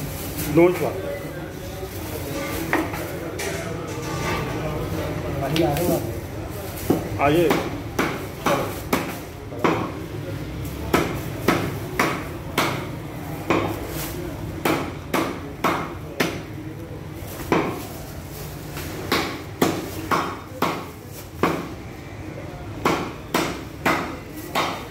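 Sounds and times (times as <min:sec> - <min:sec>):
cleaver chopping meat on wood: 0:06.9 - 0:10.0, 0:10.8 - 0:13.8, 0:14.6 - 0:16.5, 0:17.4 - 0:17.9, 0:19.0 - 0:21.7, 0:22.8 - 0:24.9.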